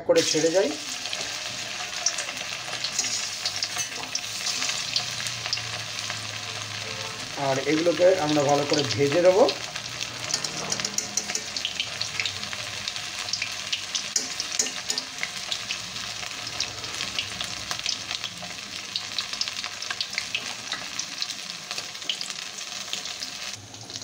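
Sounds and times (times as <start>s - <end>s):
deep-frying sizzle with crackling: 0.0s - 24.0s.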